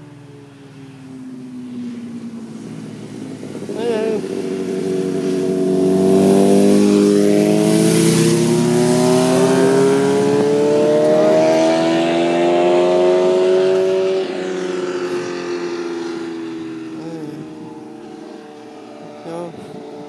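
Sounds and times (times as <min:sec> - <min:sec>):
vehicle engine revving hard: 0:03.6 - 0:18.8.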